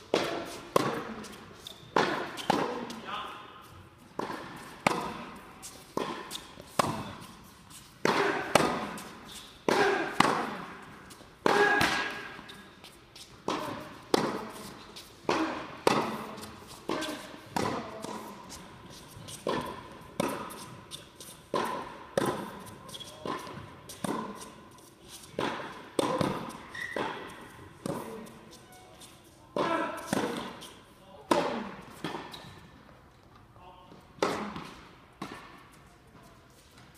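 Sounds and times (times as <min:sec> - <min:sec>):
tennis ball bouncing: 0:00.1 - 0:03.0, 0:04.1 - 0:07.4, 0:08.0 - 0:12.6, 0:13.2 - 0:24.6, 0:25.3 - 0:28.4, 0:29.6 - 0:30.7, 0:34.2 - 0:35.8
tennis racket strikes: 0:00.1 - 0:03.0, 0:04.2 - 0:12.6, 0:13.4 - 0:28.4, 0:29.6 - 0:32.6, 0:34.2 - 0:35.7.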